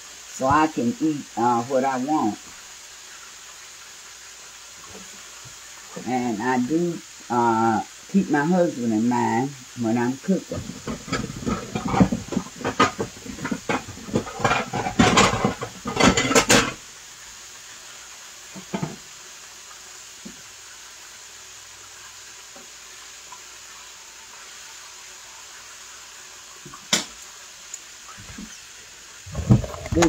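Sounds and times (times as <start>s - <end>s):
steady low hiss: 0.0s - 30.0s
dishes and utensils clinking: 10.5s - 16.8s.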